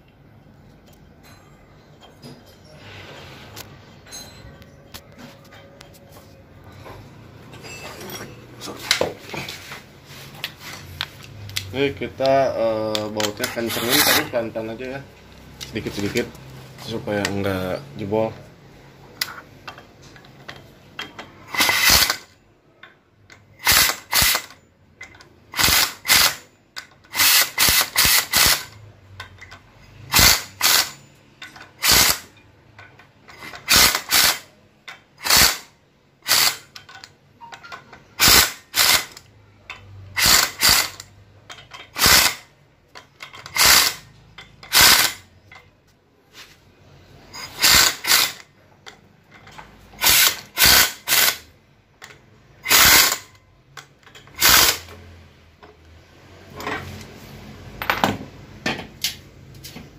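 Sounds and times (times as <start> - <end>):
impact wrench hammering: 21.0 - 22.4, 27.1 - 28.8, 30.1 - 31.0, 40.1 - 42.5, 43.2 - 45.3, 47.4 - 48.5, 50.0 - 51.5.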